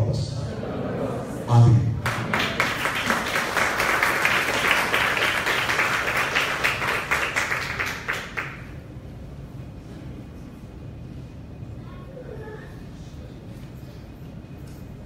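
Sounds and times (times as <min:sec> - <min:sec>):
crowd applauding: 0:02.0 - 0:08.8.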